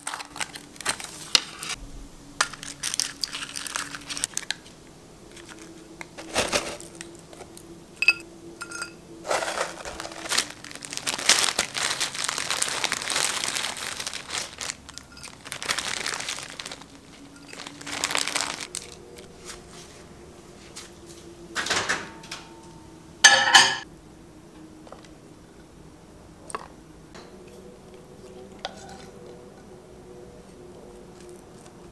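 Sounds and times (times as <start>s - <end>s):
plastic bags crinkling: 0.0s - 1.8s, 2.4s - 19.7s.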